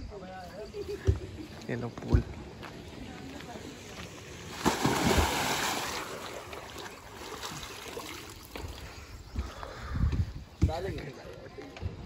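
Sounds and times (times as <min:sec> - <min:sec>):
moving water: 0:00.5 - 0:10.0
water splash: 0:04.5 - 0:08.6.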